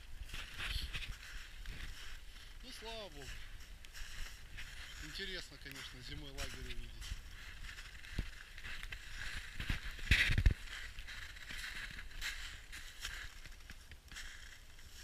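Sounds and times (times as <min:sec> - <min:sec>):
footsteps crunching in snow: 0:00.0 - 0:15.0
heavy crunch and thump: 0:09.5 - 0:10.7.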